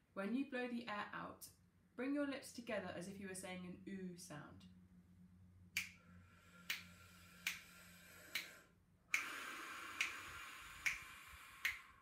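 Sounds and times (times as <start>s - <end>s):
faint breath in: 6.0s - 12.0s
air blown out through lips: 6.4s - 12.0s
sharp clicks: 9.1s - 11.9s.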